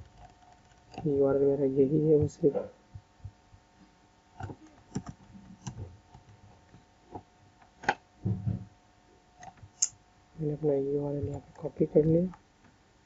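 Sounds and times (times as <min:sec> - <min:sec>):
faint steady hum: 0:00.0 - 0:13.0
mouse and keyboard clicks: 0:04.4 - 0:06.3
dull knocks: 0:08.2 - 0:08.7.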